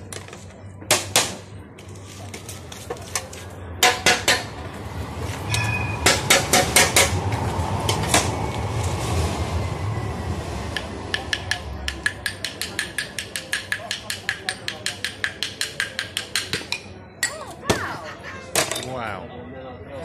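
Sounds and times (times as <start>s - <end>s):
steady rushing noise: 3.8s - 14.3s.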